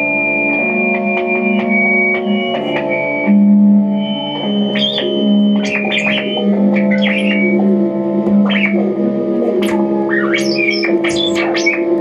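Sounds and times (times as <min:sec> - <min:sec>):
organ-like electronic drone: 0:00.0 - 0:12.0
high electronic squeaks and chirps: 0:04.0 - 0:07.7, 0:08.3 - 0:08.9, 0:09.5 - 0:12.0.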